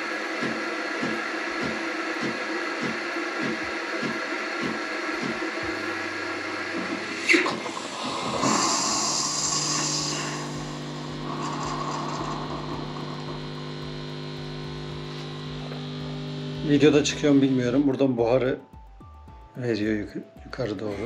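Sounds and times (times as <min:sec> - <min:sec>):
espresso machine pump hum: 0:00.0 - 0:17.8
steam hissing: 0:02.6 - 0:15.5.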